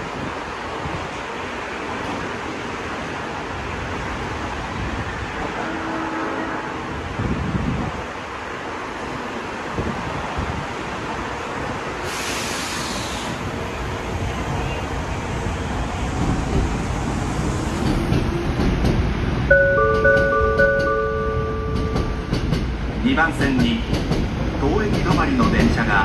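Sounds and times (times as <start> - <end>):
station platform rumble: 0.0 - 26.0
brief hiss: 12.0 - 13.4
electronic two-note signal tones: 19.5 - 22.2.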